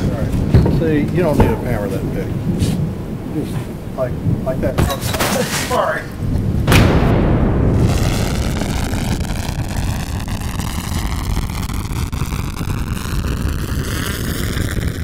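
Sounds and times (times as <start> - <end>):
rumbling hiss with whooshing sweep: 5.6 - 15.0.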